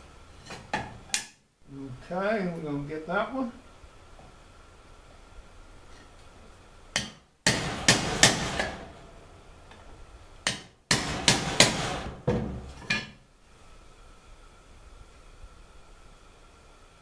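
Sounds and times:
axe hammering aluminum pot: 7.0 - 8.9, 10.4 - 12.1.

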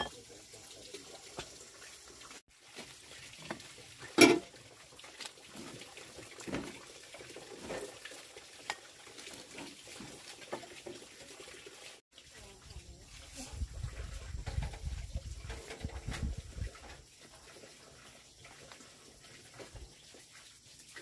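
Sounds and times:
metal pot lid clanking: 4.2 - 4.4.

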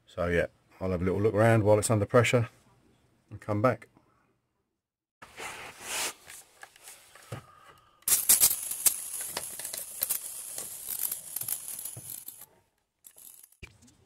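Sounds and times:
rustling and handling noises: 5.2 - 7.5, 8.1 - 14.0.

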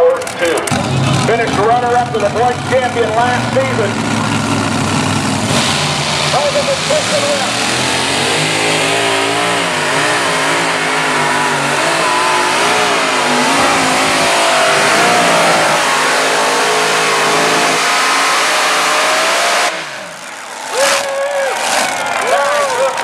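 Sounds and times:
tractor engine running flat out: 0.0 - 23.0.

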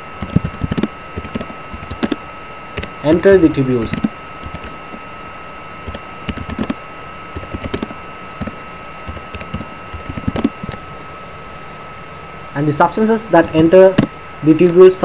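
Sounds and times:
faint steady hum: 0.0 - 15.0
keyboard typing clicks: 0.2 - 2.2, 3.9 - 4.7, 5.8 - 6.8, 7.4 - 10.8.

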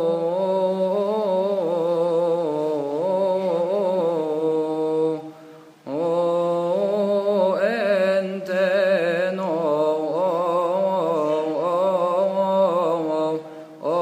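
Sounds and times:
man chanting: 0.0 - 14.0.

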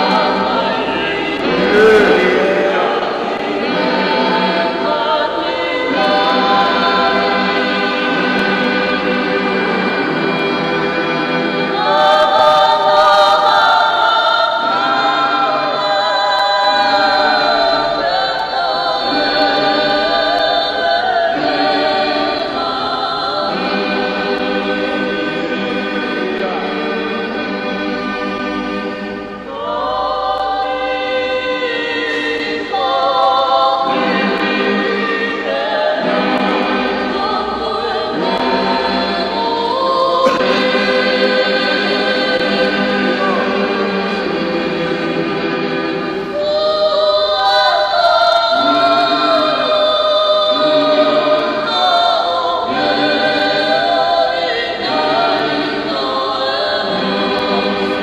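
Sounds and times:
choir singing a hymn: 0.0 - 58.0.

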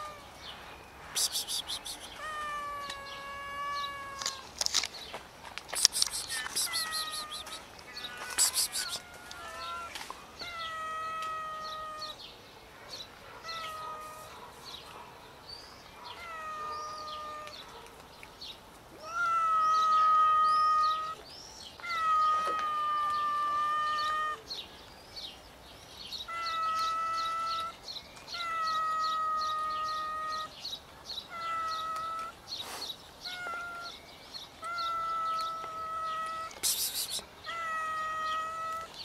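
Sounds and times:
cats meowing: 0.0 - 0.4, 1.3 - 4.8, 5.8 - 12.2, 13.4 - 14.3, 16.1 - 17.7, 18.9 - 21.2, 21.8 - 24.5, 26.2 - 30.6, 31.3 - 32.4, 33.2 - 34.0, 34.6 - 39.0.

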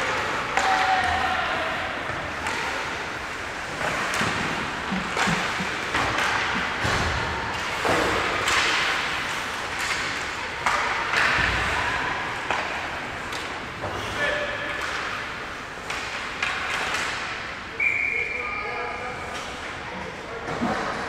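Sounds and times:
hockey sticks knocking puck: 2.0 - 11.8, 12.4 - 17.4
skates scraping ice: 2.0 - 17.3.

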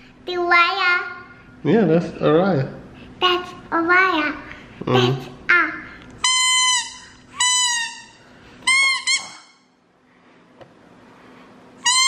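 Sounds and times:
toy plastic horn toots: 6.2 - 9.6, 11.8 - 12.0.

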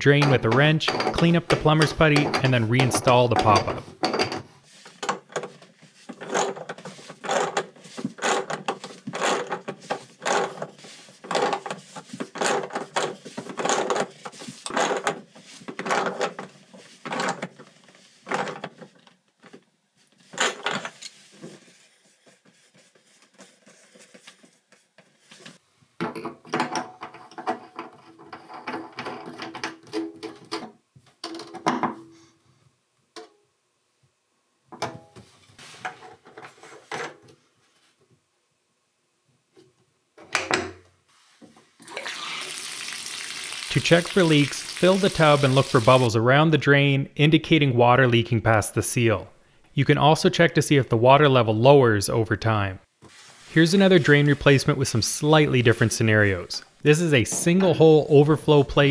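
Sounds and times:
metal tools clicking on drain: 0.0 - 4.4.

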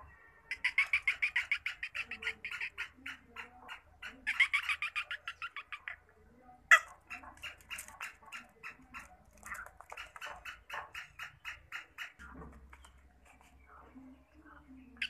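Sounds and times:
bird calling in rapid chirps: 0.4 - 6.1.

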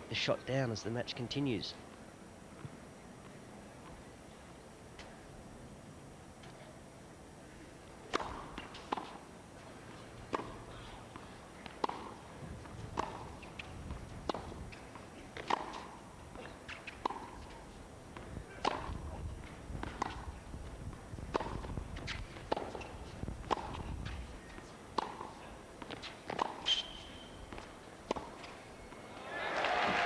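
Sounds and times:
racket striking tennis ball: 8.1 - 9.2, 10.3 - 12.3, 12.9 - 17.6, 18.2 - 20.4, 21.3 - 28.6
crowd applause: 29.1 - 30.0.

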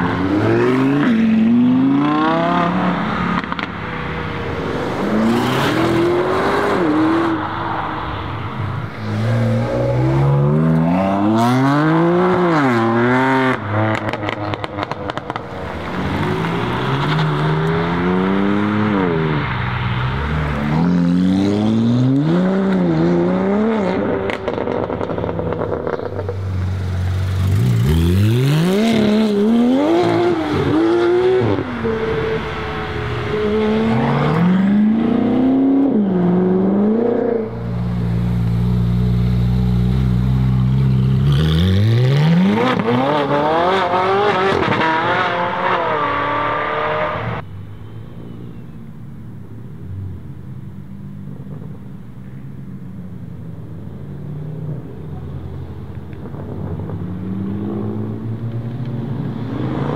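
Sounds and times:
sports cars accelerating hard: 0.0 - 26.5, 27.2 - 47.4.

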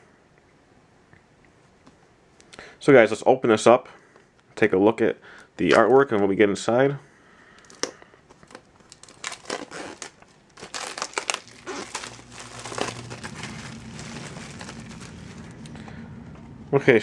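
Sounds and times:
plastic shrink wrap crinkling: 7.6 - 15.9.

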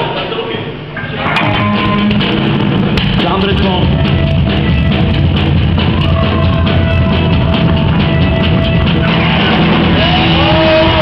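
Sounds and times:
bass guitar: 1.0 - 11.0
electric guitars: 1.0 - 11.0
drum kit: 1.2 - 11.0.

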